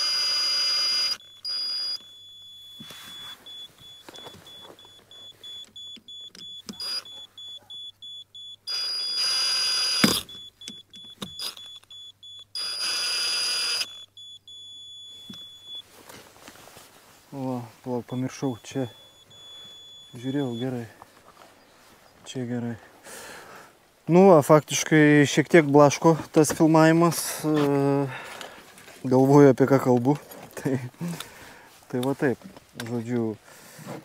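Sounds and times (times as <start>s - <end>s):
power drill driving screws into wood: 8.7s - 10.3s, 12.6s - 14.0s.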